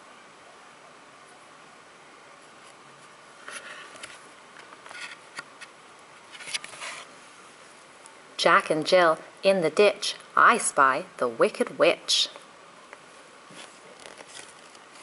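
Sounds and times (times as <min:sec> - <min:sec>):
cardboard pages turning: 0:06.3 - 0:07.1, 0:13.5 - 0:15.0.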